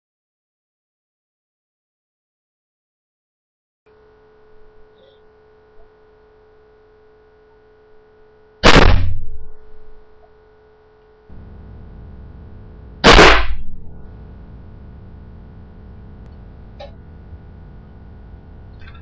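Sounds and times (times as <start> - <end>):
faint steady hum: 3.9 - 19.0
air cannon bang: 8.6 - 9.6, 13.0 - 14.0.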